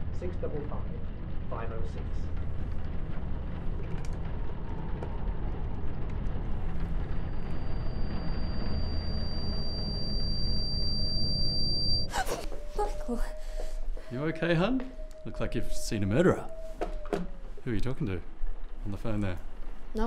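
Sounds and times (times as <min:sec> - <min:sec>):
low rumbling suspense drone: 0:00.0 - 0:20.0
thin high-pitched whine: 0:05.0 - 0:13.3.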